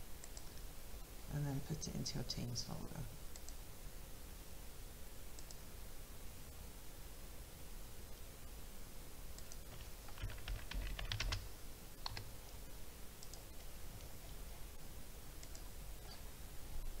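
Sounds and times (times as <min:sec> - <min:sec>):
typing on computer keyboard: 0:09.4 - 0:11.4, 0:12.0 - 0:12.3.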